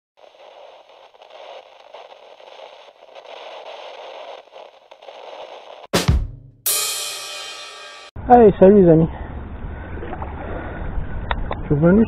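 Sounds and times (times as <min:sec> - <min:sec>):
crackling static hiss: 0:00.2 - 0:05.9.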